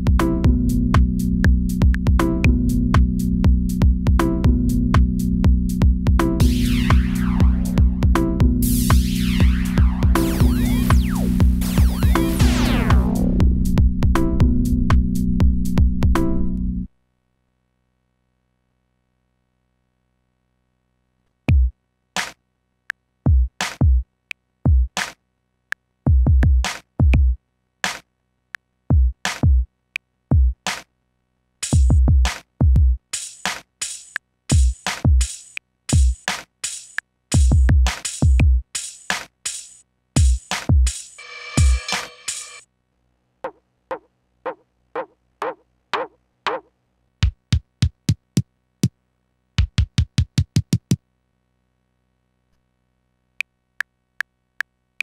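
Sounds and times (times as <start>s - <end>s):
deep kick drums: 0.0s - 16.5s, 26.1s - 27.4s, 30.3s - 30.6s, 31.8s - 33.0s, 37.3s - 38.6s, 40.2s - 40.9s, 49.6s - 51.0s
deep low electronic hits: 0.0s - 16.8s
electronic sample hits falling pitch: 6.4s - 8.1s, 8.8s - 15.0s
bright snare-like hits: 39.1s - 42.6s.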